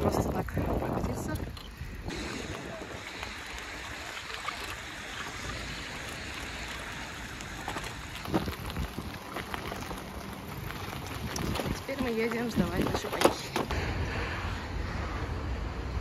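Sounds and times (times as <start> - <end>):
wind noise on microphone: 0.0 - 3.4, 7.4 - 16.0
bicycle tyres rolling on wet path: 0.0 - 16.0.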